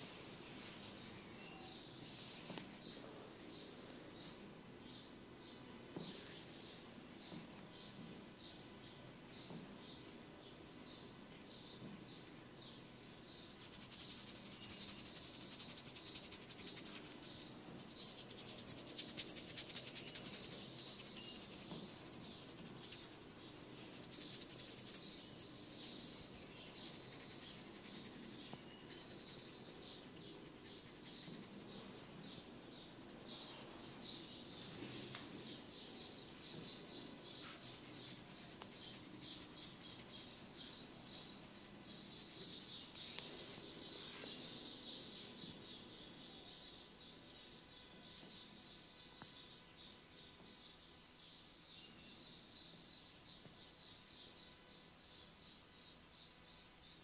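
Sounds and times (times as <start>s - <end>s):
comb scratching through hair: 13.6s - 44.3s.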